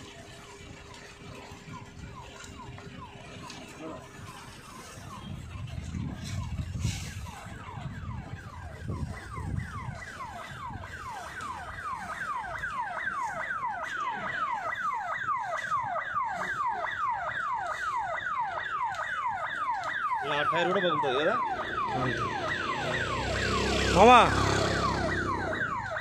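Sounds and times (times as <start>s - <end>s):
electronic siren whooping: 0.0s - 26.0s.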